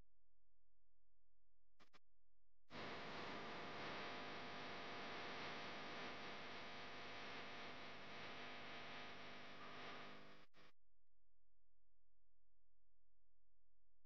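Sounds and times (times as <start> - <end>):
faint hum and hiss: 2.8 - 10.4.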